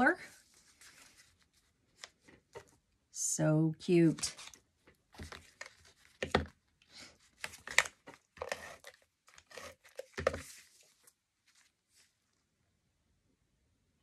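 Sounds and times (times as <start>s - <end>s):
paper rustling and scraping: 0.3s - 2.7s, 4.2s - 4.6s, 7.1s - 12.2s.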